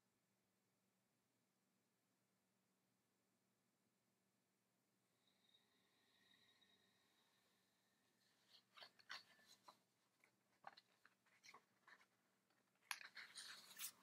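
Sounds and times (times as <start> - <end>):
rustling: 8.2 - 14.0.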